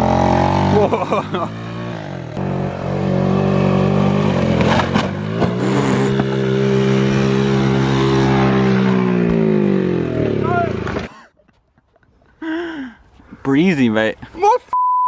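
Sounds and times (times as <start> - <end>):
moped engine revving high: 0.0 - 11.0.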